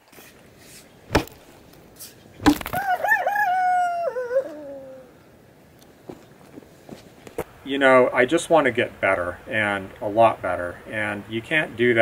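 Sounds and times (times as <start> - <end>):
sharp knocks: 1.1 - 1.4, 2.4 - 2.8
rooster crowing: 2.7 - 5.2.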